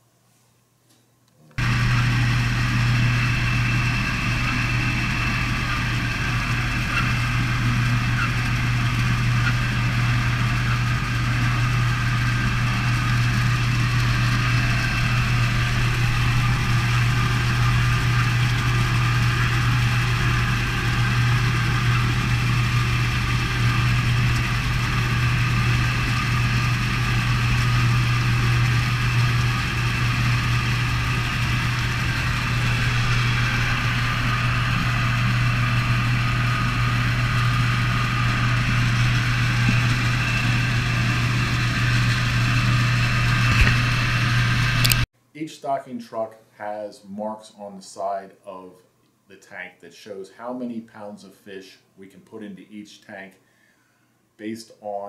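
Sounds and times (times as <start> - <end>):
truck engine idling: 1.6 - 45.0.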